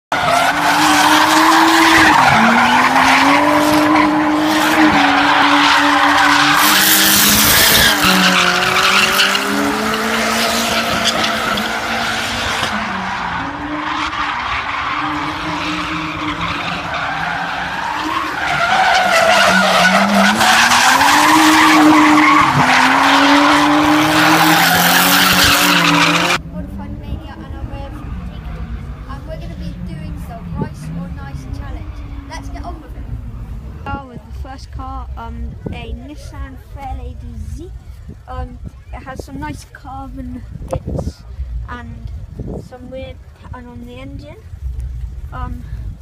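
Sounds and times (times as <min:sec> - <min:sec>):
car engine revving: 0:00.1 - 0:33.9.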